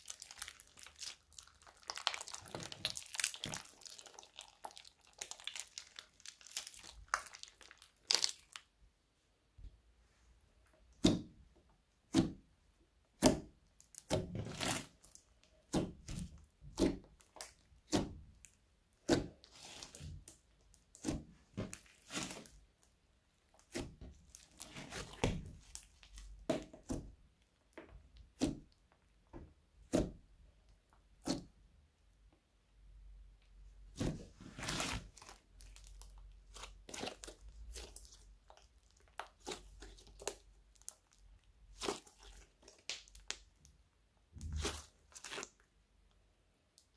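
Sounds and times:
slime crackling: 0.0s - 8.8s, 13.1s - 27.4s, 33.9s - 45.8s
slime squishing and popping: 0.0s - 8.8s, 13.1s - 31.6s, 33.9s - 45.6s.

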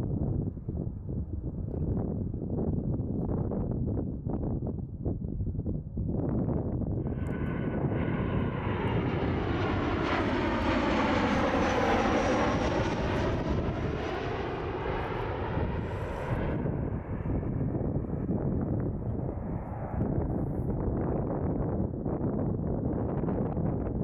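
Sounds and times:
airplane passing overhead: 6.9s - 24.0s
faint high engine whine: 7.0s - 20.8s.

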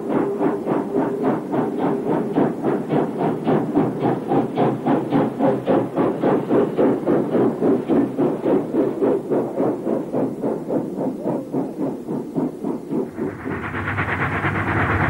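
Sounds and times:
steam locomotive chuffing: 0.0s - 15.0s.

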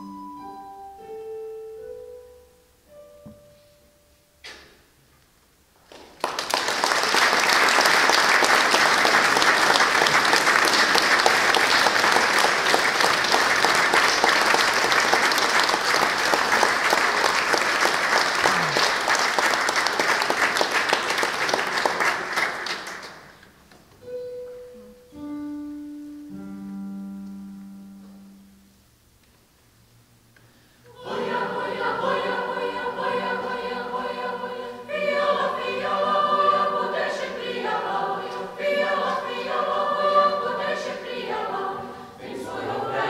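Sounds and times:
audience applauding: 5.9s - 23.4s
single held notes: 23.9s - 29.2s.

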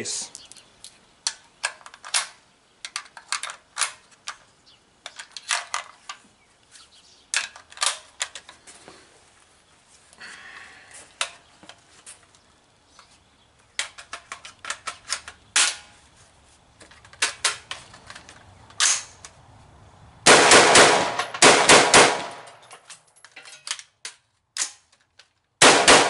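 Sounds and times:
metallic clicks of rifle handling: 0.3s - 6.2s, 7.3s - 8.6s, 13.8s - 15.8s, 16.8s - 19.4s, 22.4s - 25.5s
rapid gunshots: 20.3s - 22.4s, 25.6s - 26.0s.

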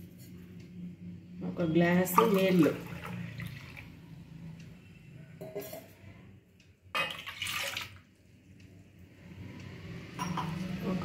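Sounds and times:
water pouring into a pot: 2.1s - 3.9s, 7.0s - 8.0s.

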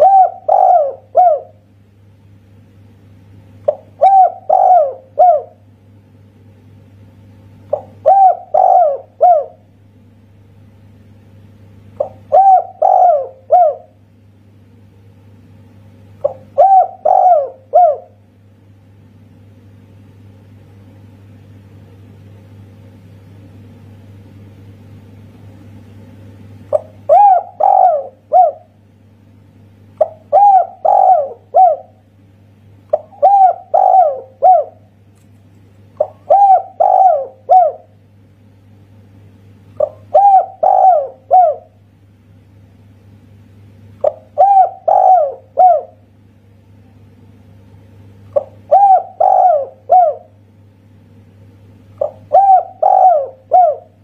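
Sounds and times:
dove cooing: 0.0s - 1.6s, 3.7s - 5.6s, 7.7s - 9.7s, 12.0s - 14.0s, 16.2s - 18.2s, 26.7s - 28.8s, 30.0s - 32.1s, 32.9s - 34.9s, 36.0s - 38.0s, 39.8s - 41.8s, 44.0s - 46.1s, 48.3s - 50.4s, 51.9s - 54.0s.

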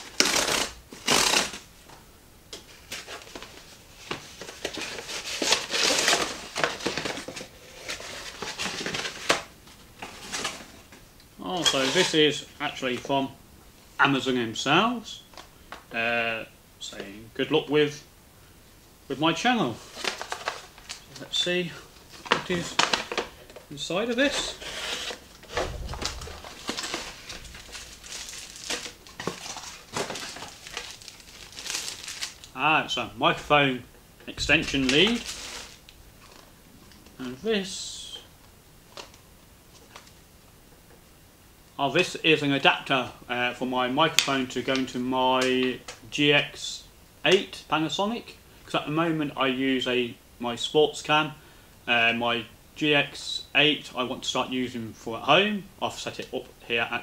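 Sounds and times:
cardboard tear strip ripping: 0.1s - 1.6s
cardboard rustling and scraping: 2.9s - 9.4s, 24.2s - 32.4s, 34.4s - 36.4s.

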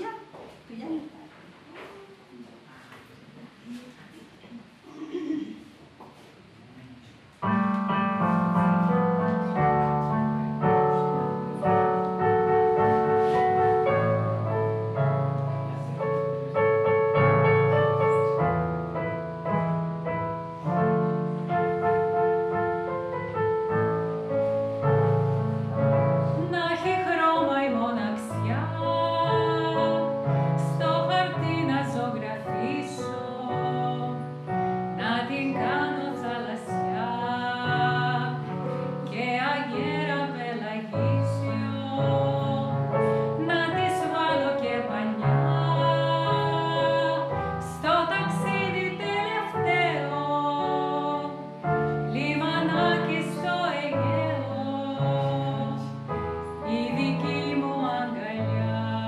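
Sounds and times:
digital piano chords and melody: 7.4s - 58.8s
woman singing classical style: 25.6s - 59.0s.

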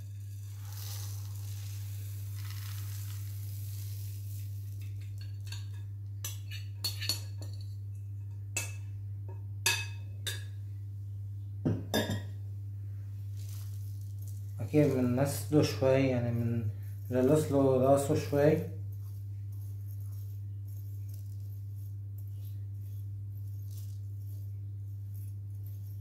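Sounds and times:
rice pouring into metal pot: 0.0s - 5.2s, 13.2s - 15.9s, 19.0s - 26.0s
glass and metal dishes clinking: 5.0s - 7.7s, 11.7s - 12.3s.

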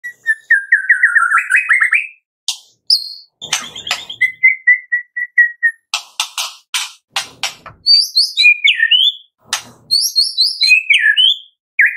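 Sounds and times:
bird singing whistled notes: 0.0s - 2.2s, 2.9s - 5.9s, 7.8s - 11.9s
bird harsh rasps: 2.9s - 4.7s.

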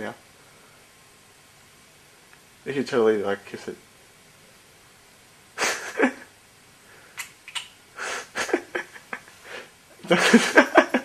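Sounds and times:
person laughing: 5.6s - 6.4s, 8.0s - 11.0s.

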